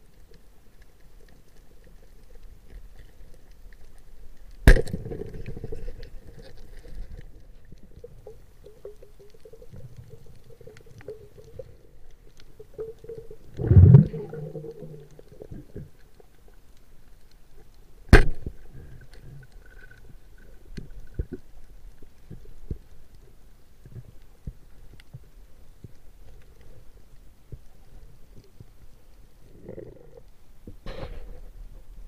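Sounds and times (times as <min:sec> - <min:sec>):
speargun firing underwater: 0:04.6 - 0:05.3, 0:18.1 - 0:18.5
low rumble: 0:13.4 - 0:15.7.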